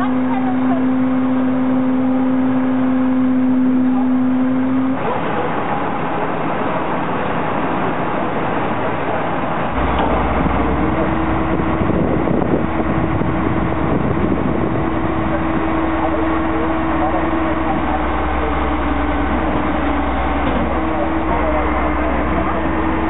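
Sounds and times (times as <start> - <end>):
diesel truck engine rumbling: 0.0 - 23.0
hydraulic jack whine: 9.6 - 23.0.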